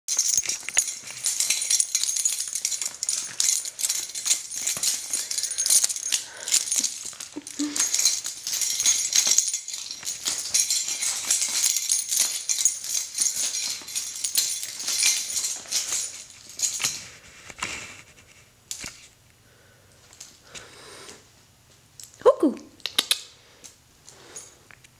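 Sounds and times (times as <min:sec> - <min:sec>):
dog collar jingling and rattling: 0:00.0 - 0:17.2.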